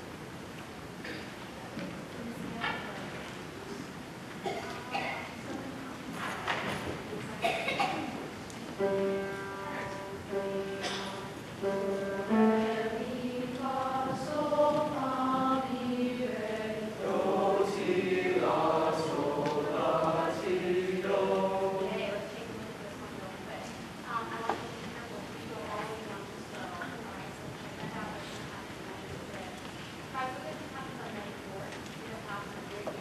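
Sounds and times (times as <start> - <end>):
male choir singing: 11.6 - 22.3.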